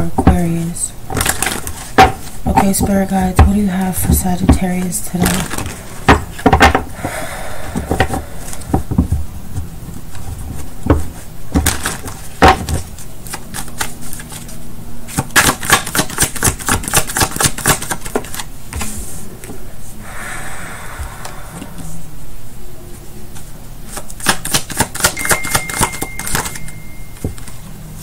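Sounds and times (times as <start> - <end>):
cards shuffled by hand: 10.5 - 19.2, 23.8 - 26.6.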